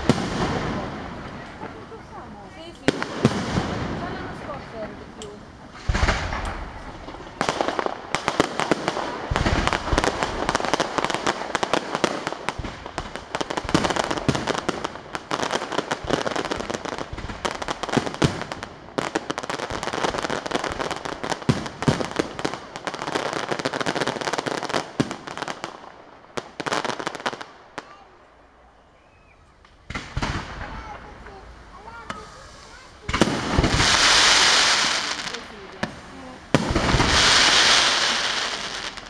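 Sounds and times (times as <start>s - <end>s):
fireworks bangs and crackling: 0.0s - 39.0s
deep firework boom: 2.9s - 4.9s, 5.7s - 10.7s, 29.9s - 32.0s, 33.0s - 39.0s.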